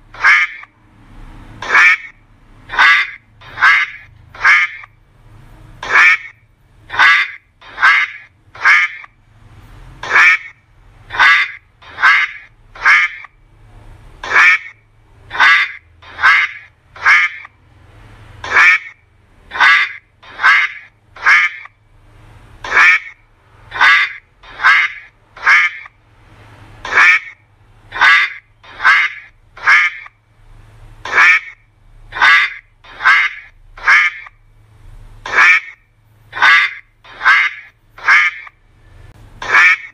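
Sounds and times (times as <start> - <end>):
duck quacking: 0.1 - 0.7, 1.6 - 4.9, 5.8 - 9.2, 10.0 - 13.4, 14.2 - 17.6, 18.4 - 21.8, 22.6 - 26.0, 26.8 - 30.2, 31.0 - 34.4, 35.2 - 38.6, 39.4 - 39.9.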